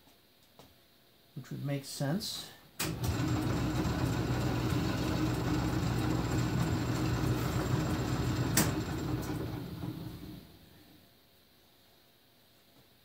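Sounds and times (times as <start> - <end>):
lathe motor hum: 2.8 - 10.7.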